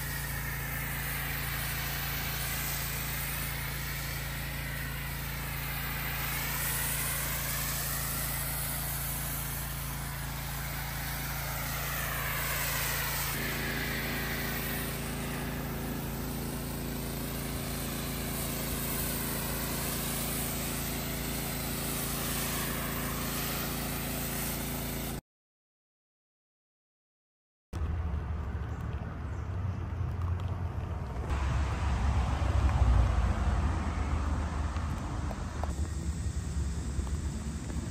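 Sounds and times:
foam spray hissing: 0.0 - 25.2, 31.3 - 37.9
pressure washer motor hum: 0.0 - 25.2, 31.3 - 37.9.

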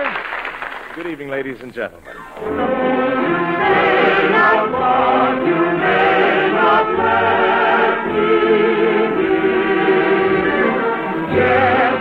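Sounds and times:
choir singing: 2.4 - 12.0
orchestral accompaniment: 2.4 - 12.0.

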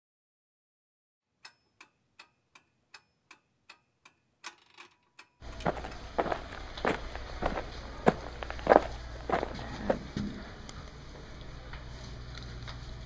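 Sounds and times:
clock ticking: 1.4 - 4.6
footsteps: 5.4 - 10.6
steady low hum: 5.4 - 13.0.

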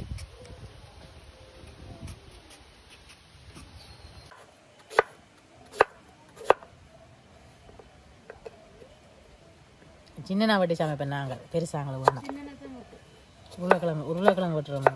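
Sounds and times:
knife chopping on wooden board: 13.5 - 14.9.

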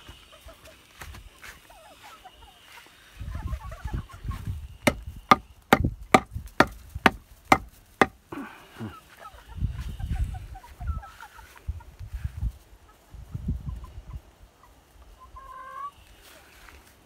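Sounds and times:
chickens clucking softly: 0.0 - 4.8, 8.6 - 16.9
sharp knocks: 4.9 - 8.2.

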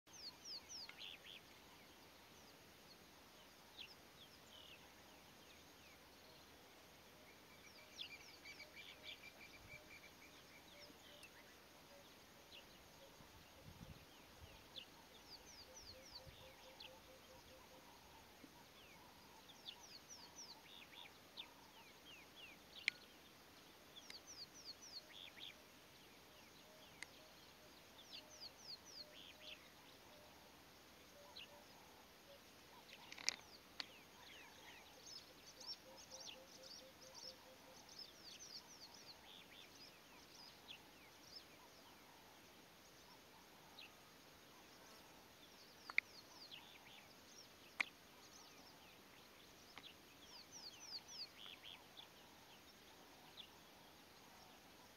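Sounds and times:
small birds chirping: 0.0 - 54.9.

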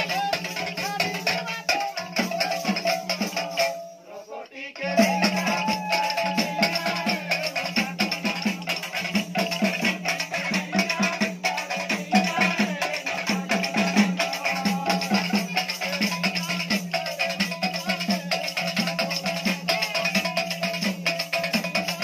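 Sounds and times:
hand cymbals jingling: 0.0 - 22.0
barrel drum beating: 5.0 - 19.6.

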